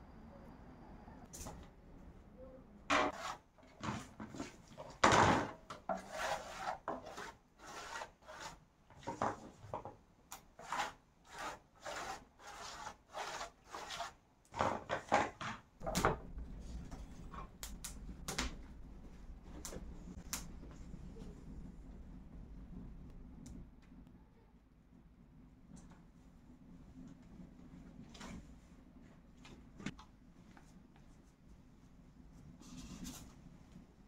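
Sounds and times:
scraping strokes: 5.9 - 9.3.

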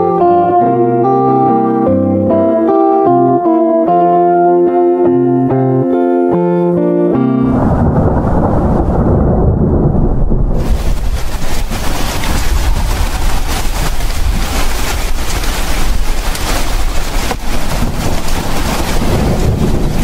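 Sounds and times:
deep rumble: 7.2 - 20.0
loud rushing noise: 7.3 - 20.0.

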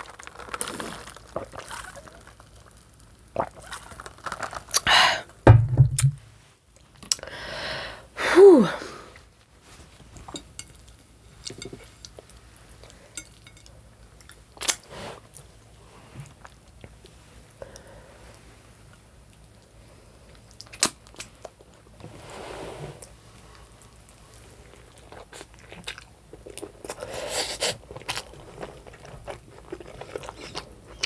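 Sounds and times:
dull thump: 5.5 - 6.3.

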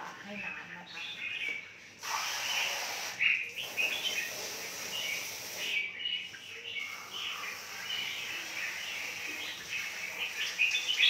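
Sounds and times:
caged birds chirping: 0.0 - 11.0
water running from hose: 2.0 - 5.9, 6.8 - 11.0.

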